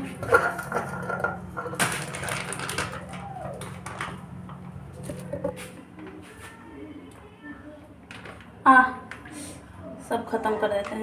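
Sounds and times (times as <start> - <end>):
steel bowl scraping on counter: 0.0 - 2.3.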